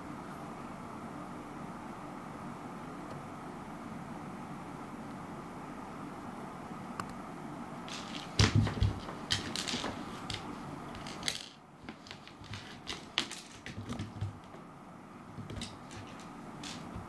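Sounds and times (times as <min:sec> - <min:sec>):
cat paws thumping on floor: 0:07.9 - 0:14.6
seed clicking on wooden boards: 0:07.9 - 0:14.6, 0:15.4 - 0:17.0.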